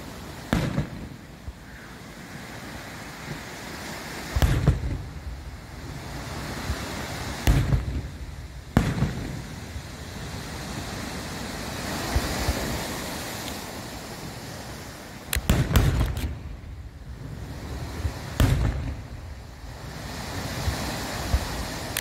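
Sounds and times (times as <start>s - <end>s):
fireworks bursting with bangs: 0.0s - 22.0s.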